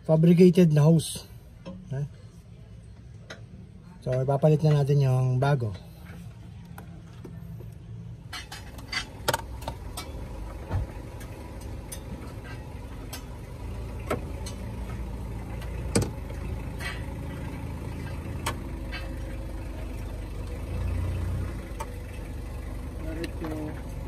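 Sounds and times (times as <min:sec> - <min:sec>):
low engine hum: 0:05.3 - 0:24.0.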